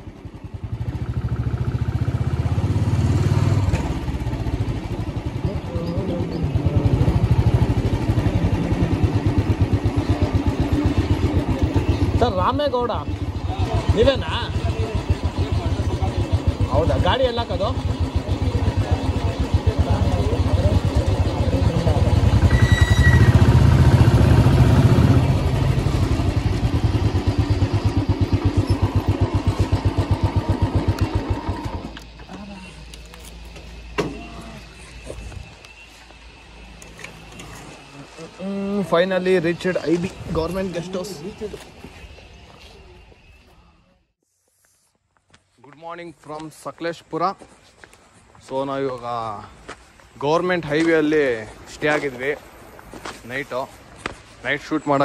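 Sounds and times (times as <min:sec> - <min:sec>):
motorcycle engine thumping: 0:33.5 - 0:34.6.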